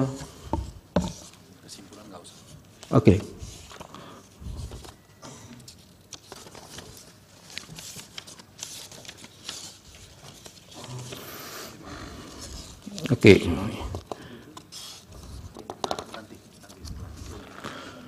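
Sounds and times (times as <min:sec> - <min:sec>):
paper rustling: 0:01.1 - 0:05.0, 0:05.6 - 0:11.4
pages being leafed through: 0:03.5 - 0:05.0, 0:05.6 - 0:11.4.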